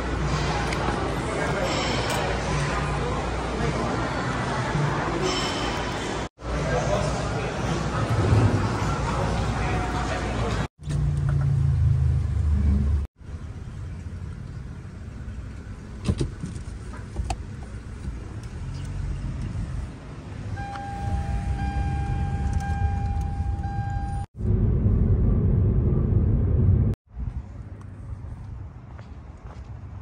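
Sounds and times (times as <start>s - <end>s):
car engine and road rumble: 7.8s - 30.0s.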